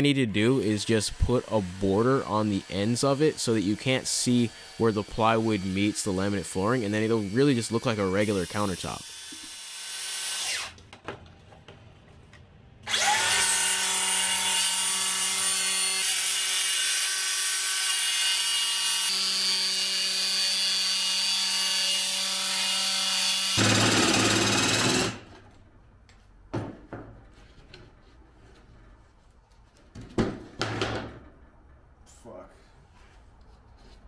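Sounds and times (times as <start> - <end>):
circular saw cutting plywood: 0.4 - 10.8, 12.9 - 25.3.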